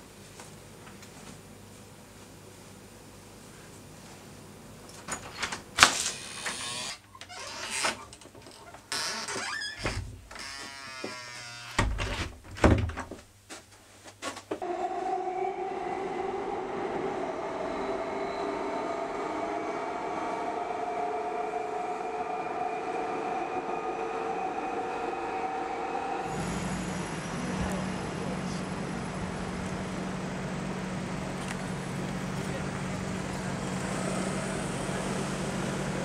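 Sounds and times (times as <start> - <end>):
train whine: 14.6 - 36.0
underground train rumble: 14.6 - 36.0.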